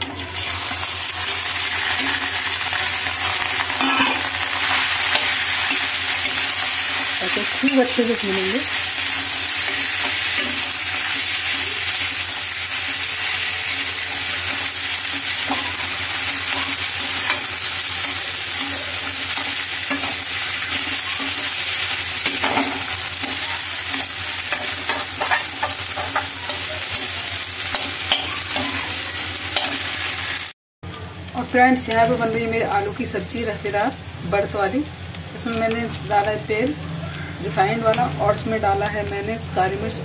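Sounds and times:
potato sizzling in a pan: 0.0 - 40.0
spatula scraping a pan: 3.6 - 7.8, 22.2 - 29.0.

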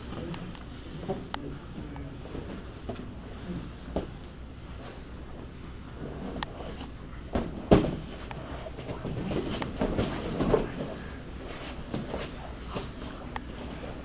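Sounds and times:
thumps and knocks on mat: 7.3 - 8.2.

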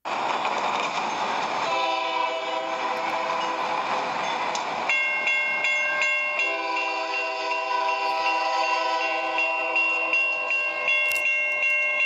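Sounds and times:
railroad crossing bell ringing: 1.0 - 12.0
train horn chord: 1.6 - 3.8, 5.9 - 11.2.

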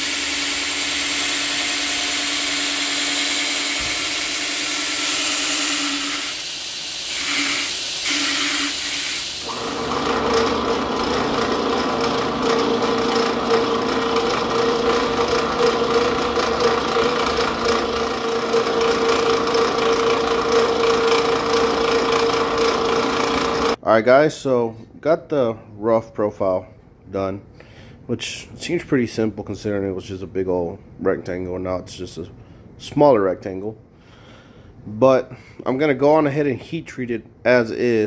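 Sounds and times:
belt grinder grinding steel: 0.0 - 23.8
drill bit scraping metal: 0.0 - 23.8
drill press motor tone: 0.0 - 23.8.

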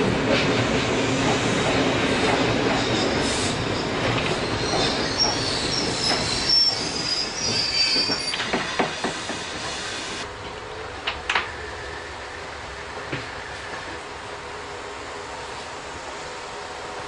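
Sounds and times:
train rolling: 0.0 - 17.0
train wheels squealing: 2.6 - 10.2.

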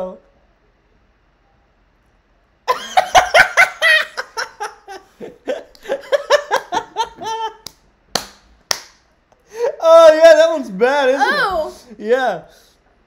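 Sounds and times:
man laughing hard: 2.7 - 7.7.

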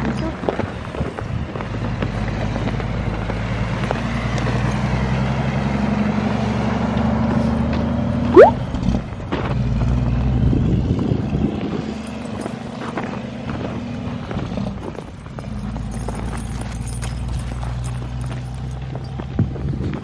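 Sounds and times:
short rising squeal: 8.4 - 8.6.

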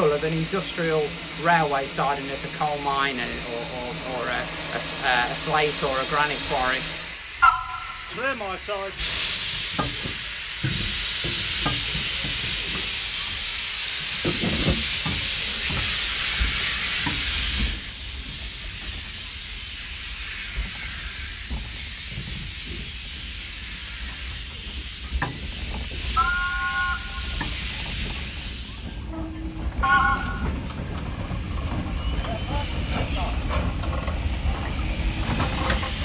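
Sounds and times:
steam locomotive hissing: 0.0 - 36.0
high-pitched tone: 7.4 - 8.2.

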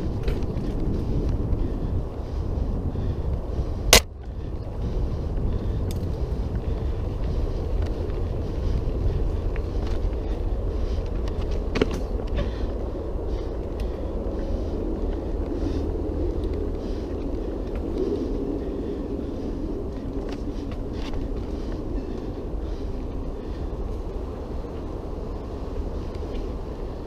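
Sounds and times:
bike rattling: 0.0 - 27.0
wind buffeting microphone: 0.0 - 27.0.

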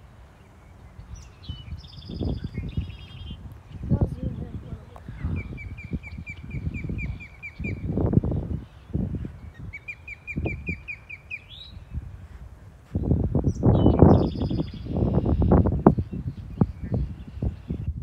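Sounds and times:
low gusty rumbling: 0.8 - 10.9, 11.5 - 18.0
osprey whistled chirps: 5.4 - 8.0, 9.5 - 11.8, 13.5 - 17.6.

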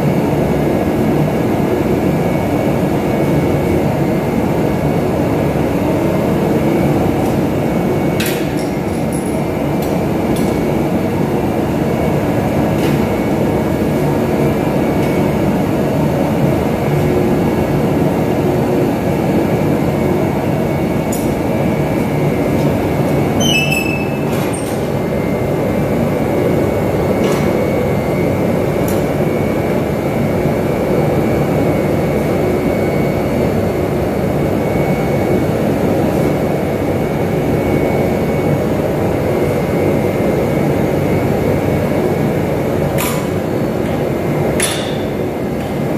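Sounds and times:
brief high squeak: 23.4 - 24.8.

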